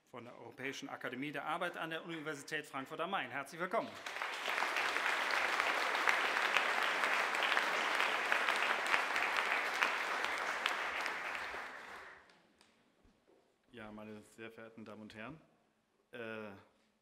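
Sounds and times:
audience applauding: 0:03.8 - 0:12.3.

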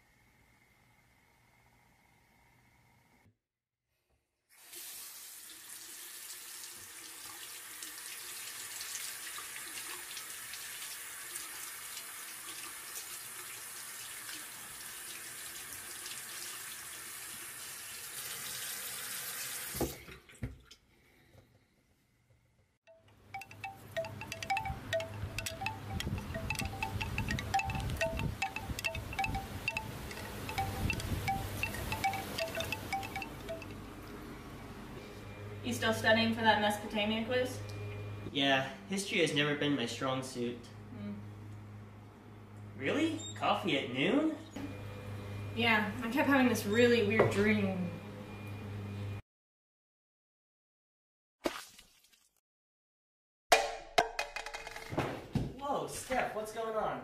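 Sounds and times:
water running from a sink tap: 0:04.6 - 0:20.0
chimes ringing: 0:22.9 - 0:33.9.

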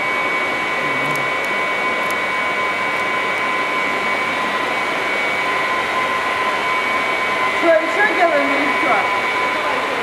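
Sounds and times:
high machine whine: 0:00.0 - 0:10.0
water pumps rushing drone: 0:00.0 - 0:10.0.

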